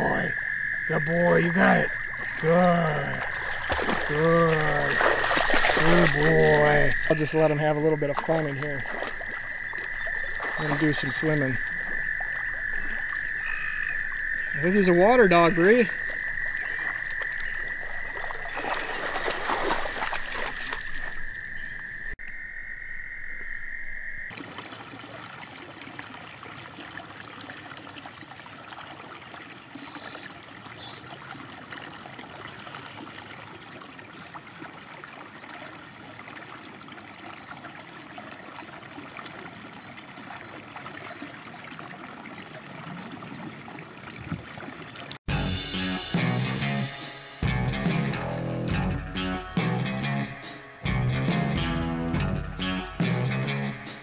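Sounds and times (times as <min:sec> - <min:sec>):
water trickling: 0:00.0 - 0:22.4, 0:24.1 - 0:45.2
faint chirps: 0:00.0 - 0:24.3
frog trilling: 0:00.0 - 0:24.3
dog splashing through water: 0:01.9 - 0:22.2.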